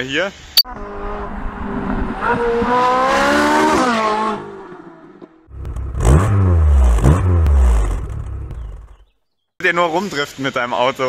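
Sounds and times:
car engine revving: 0.7s - 9.0s.

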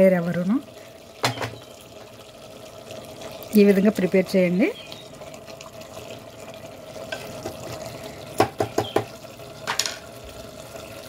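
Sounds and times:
spoon knocking against pot: 1.2s - 1.6s, 8.4s - 9.1s.

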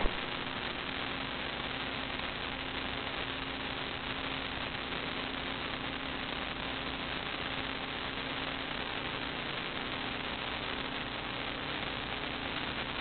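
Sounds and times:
low hum: 0.0s - 0.5s
electronic hiss: 0.0s - 13.0s.

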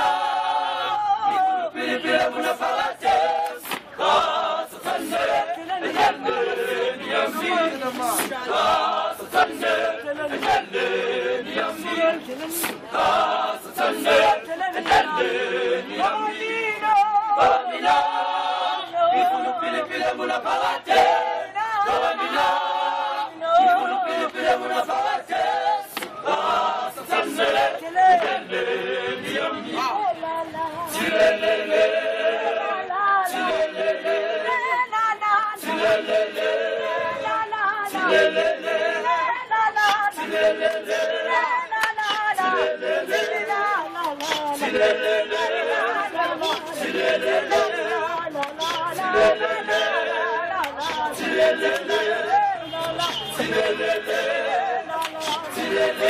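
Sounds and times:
male choir singing in harmony: 0.0s - 56.0s
sharp hand claps: 3.4s - 3.9s, 12.6s - 12.8s, 25.9s - 26.2s, 44.0s - 44.6s.

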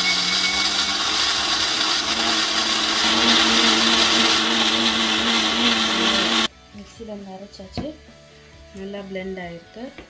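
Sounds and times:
mixer grinder running: 0.0s - 6.5s.

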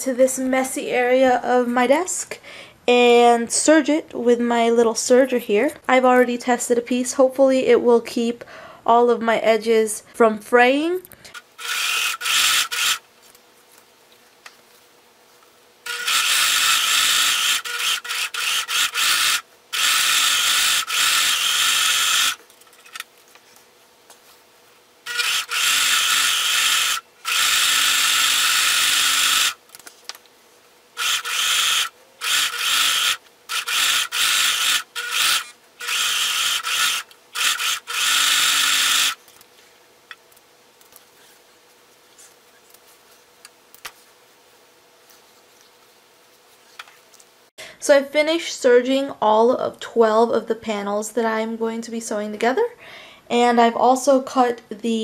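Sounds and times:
overlocker sewing machine running: 11.3s - 13.0s, 15.8s - 22.4s, 25.0s - 29.6s, 31.0s - 39.2s.

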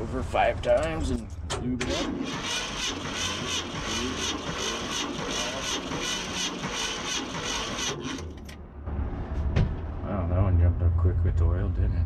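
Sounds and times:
starter cranking engine: 1.8s - 8.5s.

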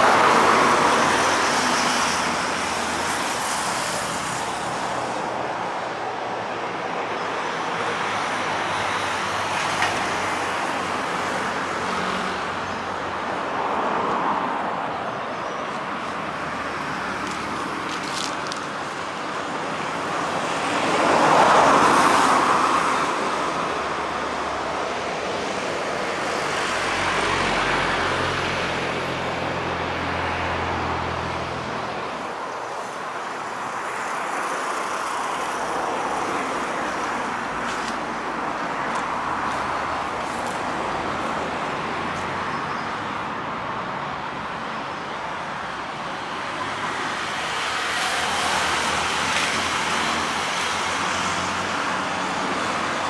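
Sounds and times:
road traffic: 0.0s - 53.0s
vehicles passing: 0.0s - 53.0s.

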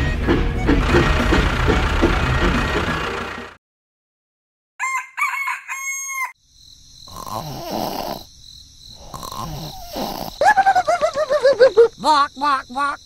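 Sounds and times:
rooster crowing: 4.8s - 6.4s
rough soft fowl calls: 4.8s - 6.4s.

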